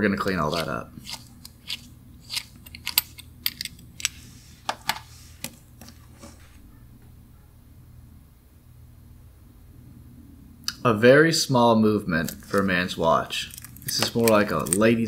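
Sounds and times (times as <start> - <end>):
metallic clicks and scrapes of watch: 0.5 - 4.3, 12.2 - 12.7, 13.4 - 14.9
metal watch bracelet handled: 0.5 - 5.6, 12.2 - 12.7, 13.4 - 14.9.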